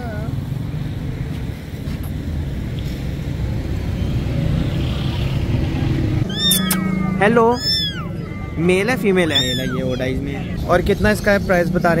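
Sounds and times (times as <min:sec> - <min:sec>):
street traffic rumble: 0:00.0 - 0:12.0
kitten mewing: 0:06.2 - 0:10.2.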